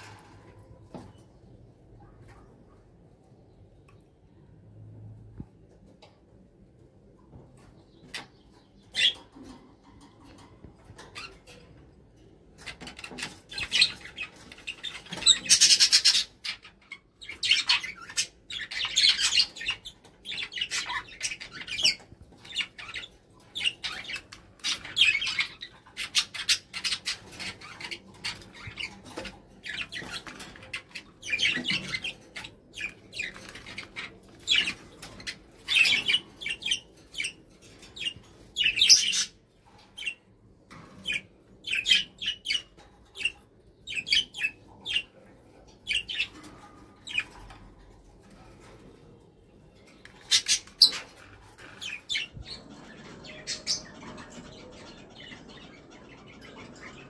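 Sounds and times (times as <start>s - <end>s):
parakeet chattering calls: 12.6s - 37.4s, 45.8s - 46.3s.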